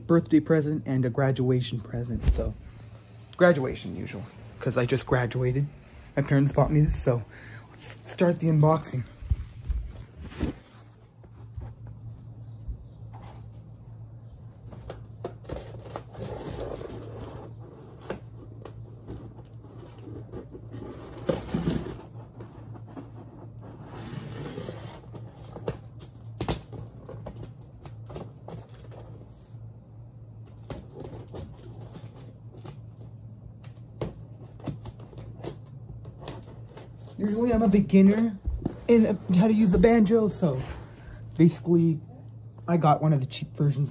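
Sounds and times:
steady low hum: 0.0 - 43.9
cardboard and tape tearing: 15.2 - 29.0.

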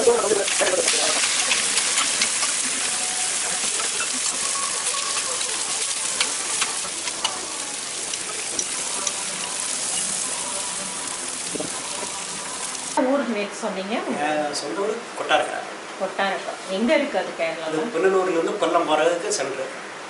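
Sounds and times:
dosas sizzling on griddle: 0.0 - 13.0.

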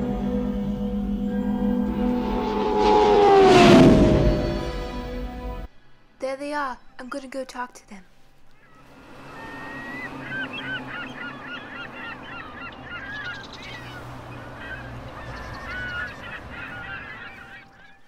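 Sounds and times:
low steady rumble: 0.0 - 5.7
geese honking: 8.5 - 18.0.

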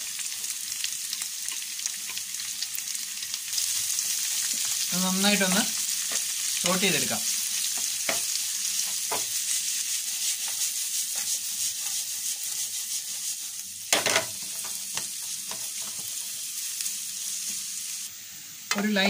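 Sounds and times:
onions sizzling in hot oil: 0.0 - 19.0
wooden spatula scraping a pan: 7.6 - 16.5
spatula knocking on pan: 8.9 - 9.3.

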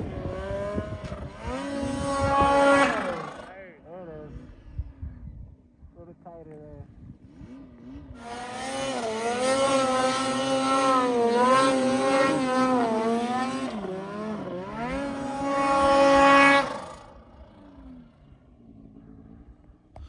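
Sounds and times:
snowmobile engine revving: 0.0 - 4.8, 7.0 - 19.5.

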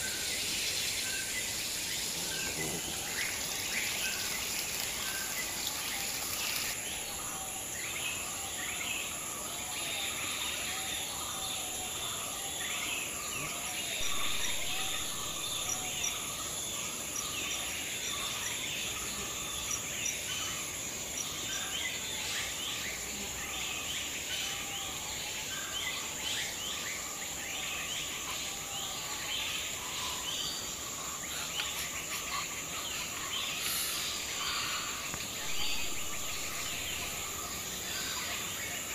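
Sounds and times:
high-pitched insect drone: 0.0 - 12.4, 13.2 - 19.8, 28.1 - 38.9.

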